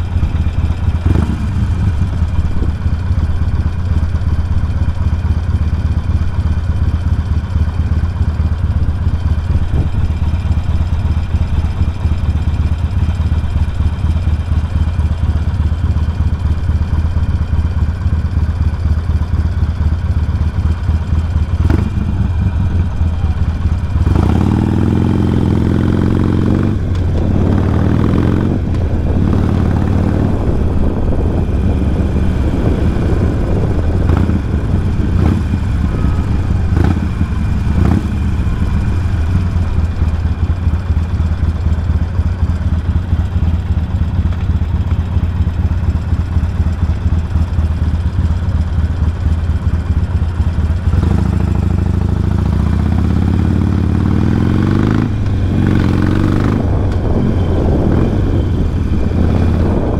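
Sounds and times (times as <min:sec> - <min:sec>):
motorcycle engine accelerating: 0:00.0 - 0:59.9.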